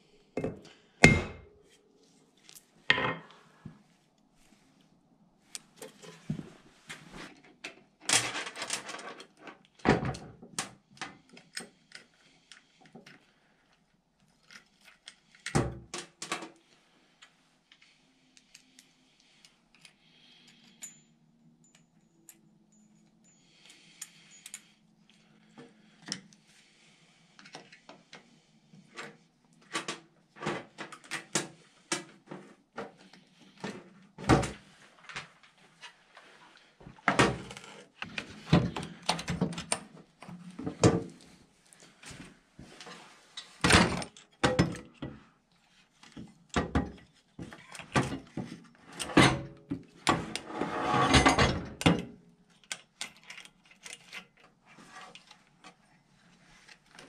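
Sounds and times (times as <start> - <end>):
metal parts and chain clinking: 19.7 - 25.2.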